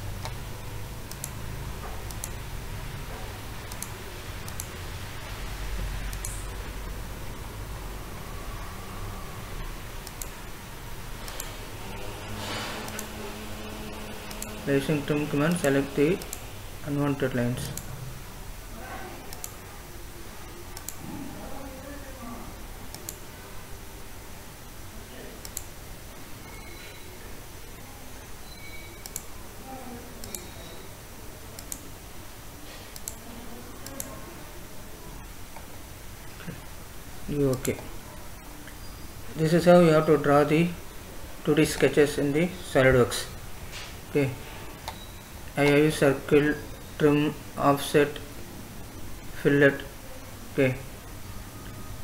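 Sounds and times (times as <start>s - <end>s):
low steady hum: 0.0s - 52.0s
computer mouse clicking: 0.2s - 0.4s, 1.0s - 1.4s, 2.0s - 2.4s, 3.6s - 4.8s, 6.1s - 6.5s, 10.0s - 10.4s, 11.2s - 11.6s, 12.8s - 13.2s, 14.2s - 14.6s, 15.5s - 16.4s, 17.6s - 17.9s, 19.3s - 19.6s, 20.7s - 21.1s, 22.9s - 23.2s, 25.4s - 25.8s, 29.0s - 29.3s, 30.2s - 30.5s, 31.6s - 31.9s, 32.9s - 33.2s, 33.8s - 34.2s, 37.5s - 37.8s.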